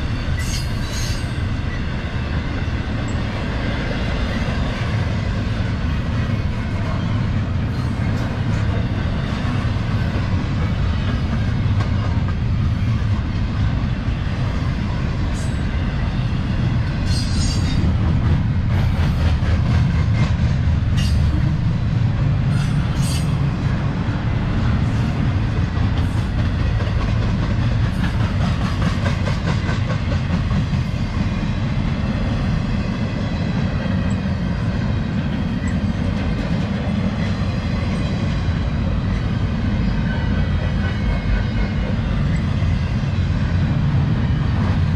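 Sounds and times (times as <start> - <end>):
train wheels rumbling on rail: 0.0 - 44.9
wheels clicking over rail joints: 25.6 - 31.0.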